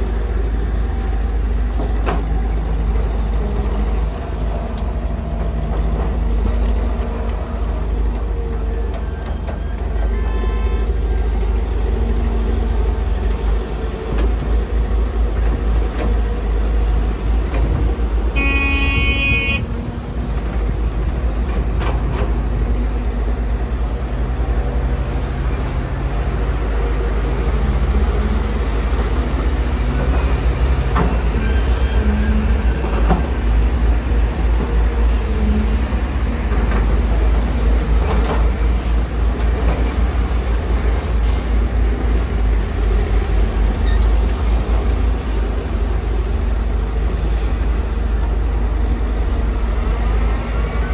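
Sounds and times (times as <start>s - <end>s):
diesel engines rumbling: 0.0s - 50.9s
vehicle horn toot: 10.1s - 10.8s, 18.4s - 19.7s.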